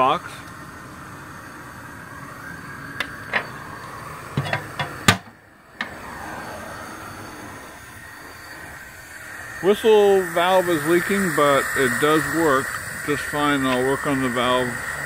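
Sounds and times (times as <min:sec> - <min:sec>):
steady background hiss: 0:00.0 - 0:15.0
metal door clunking shut: 0:04.4 - 0:05.3.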